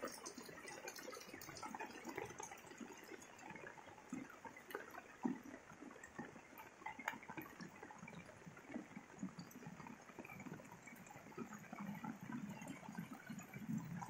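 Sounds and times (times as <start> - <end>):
raindrops hitting nearby: 0.0 - 14.0.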